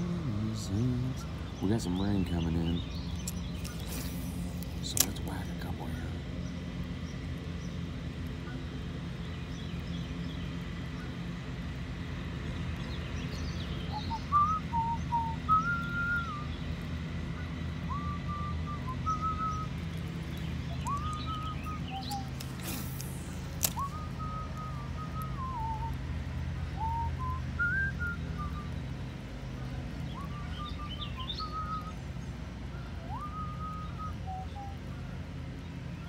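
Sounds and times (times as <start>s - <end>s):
low background rumble: 0.0s - 36.0s
man whistling a slow tune: 13.9s - 16.6s, 17.9s - 19.8s, 20.9s - 22.7s, 23.7s - 26.0s, 26.8s - 28.8s, 30.1s - 32.0s, 32.7s - 34.8s
sharp click: 22.0s - 23.9s.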